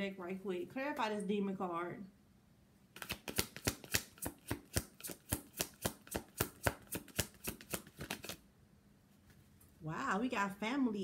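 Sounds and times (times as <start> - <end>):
cards being shuffled: 2.9 - 8.4.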